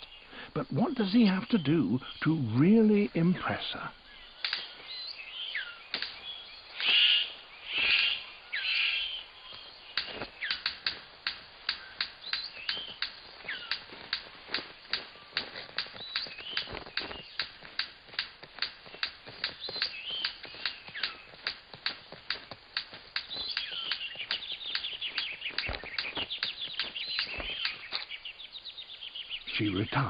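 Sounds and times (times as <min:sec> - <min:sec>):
bird harsh calls: 0:00.0 - 0:30.0
bird whistling: 0:04.1 - 0:10.8, 0:11.7 - 0:13.9, 0:19.4 - 0:21.4, 0:23.2 - 0:30.0
bird clicking rapidly: 0:10.0 - 0:27.9.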